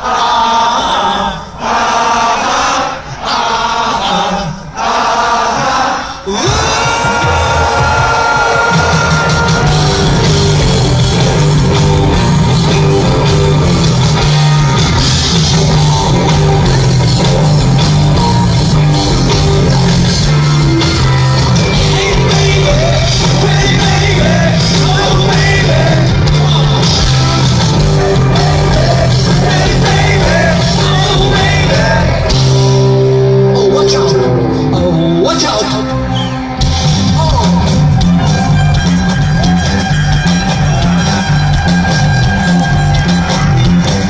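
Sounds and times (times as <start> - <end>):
man singing: 5.6 - 10.8, 21.5 - 35.9
live rock band playing: 6.3 - 44.0.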